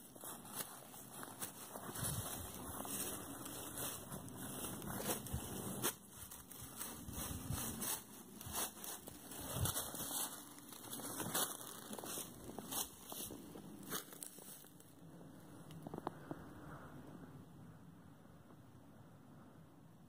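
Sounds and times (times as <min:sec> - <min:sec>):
footsteps crunching dry leaves: 0:00.0 - 0:14.9.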